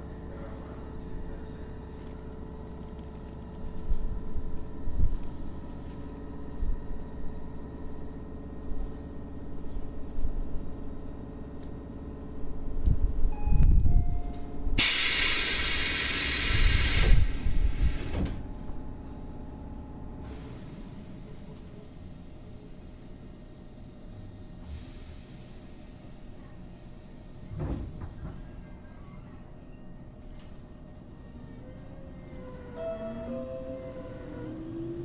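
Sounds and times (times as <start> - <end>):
electric train humming: 0.0 - 27.5, 30.0 - 35.0
compressed air hiss: 14.8 - 18.2
falling two-step tone: 32.7 - 35.0.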